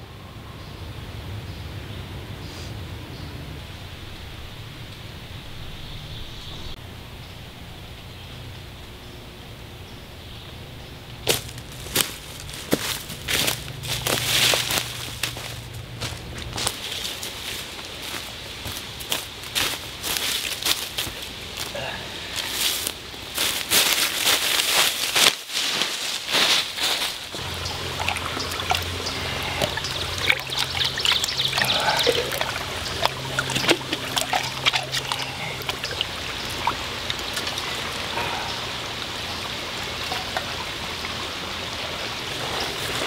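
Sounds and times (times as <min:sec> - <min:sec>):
stream trickling over stones: 0:11.0 - 0:43.0
footsteps crunching through dry leaves: 0:11.2 - 0:36.0
water poured from cups: 0:27.4 - 0:38.7, 0:39.8 - 0:41.2
small water splashes: 0:27.4 - 0:43.0.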